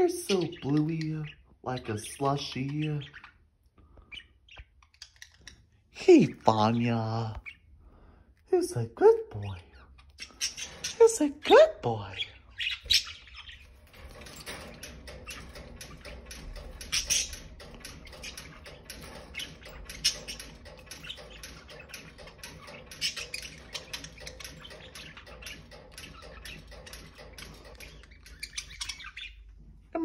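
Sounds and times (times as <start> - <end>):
budgerigars chirping: 0.0 - 29.6.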